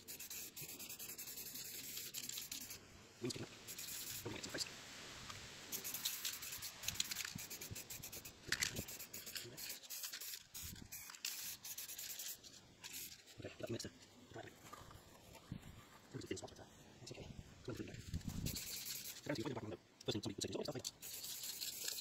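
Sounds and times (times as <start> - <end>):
spray paint can hissing: 0.0 - 2.8, 3.6 - 4.6, 5.7 - 13.2, 18.2 - 19.4, 20.8 - 22.0.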